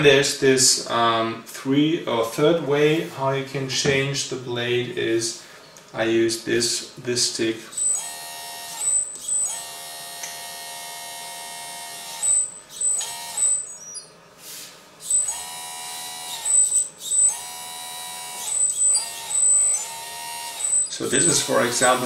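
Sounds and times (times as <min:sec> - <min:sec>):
hydraulic pump whining: 0:07.7 - 0:14.2, 0:15.0 - 0:22.0.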